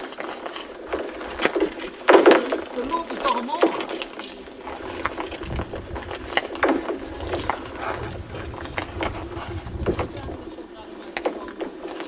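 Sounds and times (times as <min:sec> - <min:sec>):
lake ice cracking and singing: 0:00.0 - 0:09.5
low rumble: 0:07.0 - 0:10.6.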